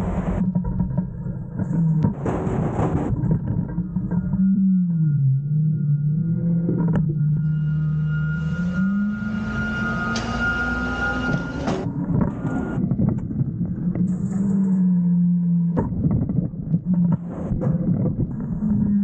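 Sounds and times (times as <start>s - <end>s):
garbage truck engine and hydraulics: 0.0s - 15.8s
high whine: 0.0s - 16.2s
trash sliding and clattering: 2.0s - 3.7s.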